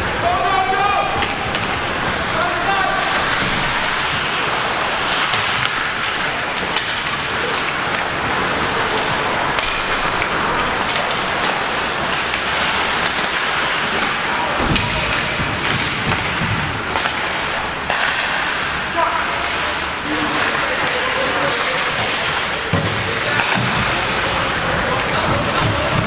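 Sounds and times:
skates scraping across ice: 0:01.2 - 0:26.0
low thump: 0:14.6 - 0:16.8.

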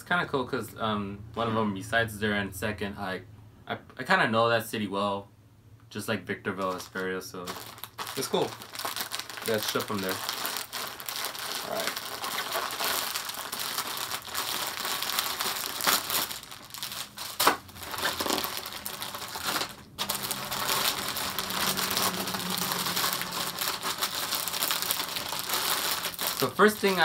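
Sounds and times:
plastic bag crinkling and tearing: 0:06.6 - 0:27.0.

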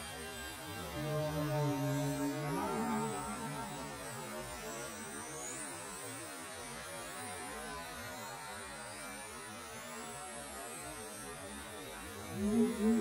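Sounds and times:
steady low hum: 0:00.0 - 0:05.4, 0:11.7 - 0:13.0
high electric motor whines: 0:00.0 - 0:13.0.

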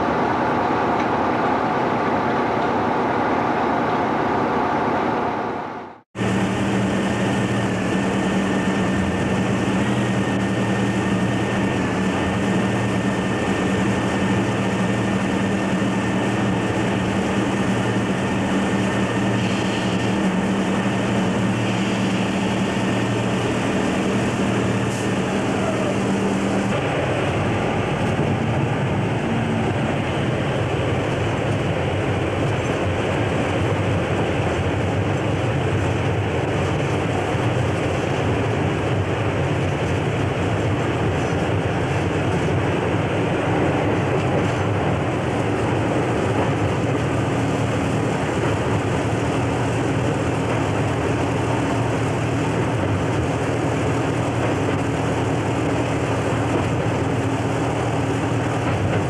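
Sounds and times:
diesel locomotive engine running: 0:00.0 - 0:59.0.

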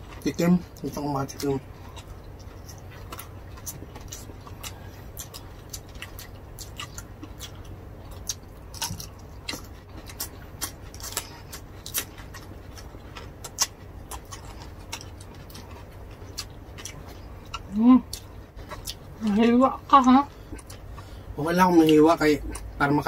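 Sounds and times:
people chewing food: 0:00.0 - 0:23.0.

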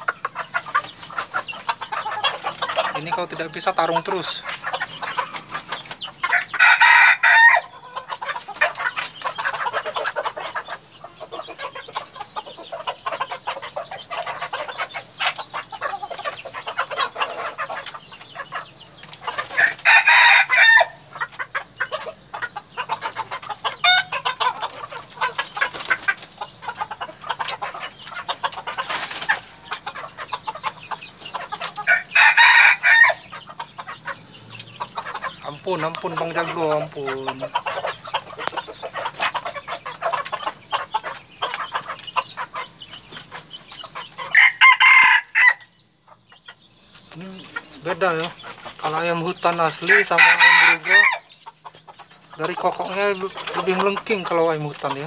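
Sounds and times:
soft clucking: 0:00.0 - 0:55.0
rooster crowing: 0:06.3 - 0:07.8, 0:19.6 - 0:21.0, 0:31.8 - 0:33.3, 0:44.3 - 0:45.7, 0:49.9 - 0:51.3.

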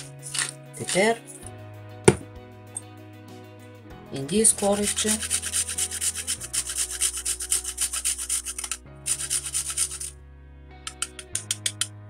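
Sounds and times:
nutmeg grating strokes: 0:00.0 - 0:01.4, 0:04.5 - 0:10.2.

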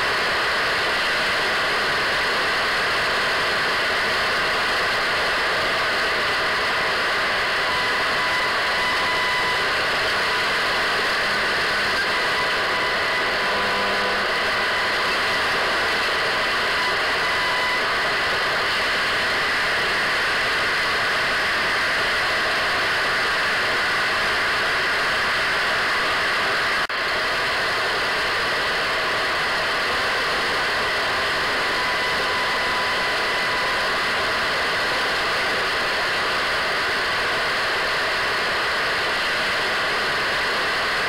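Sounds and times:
radio static hiss: 0:05.2 - 0:20.6
faint high whistle: 0:07.8 - 0:14.7.

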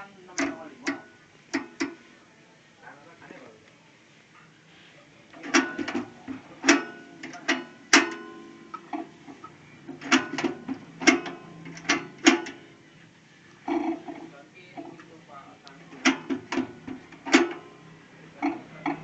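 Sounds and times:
card embosser clacking: 0:16.0 - 0:17.8.

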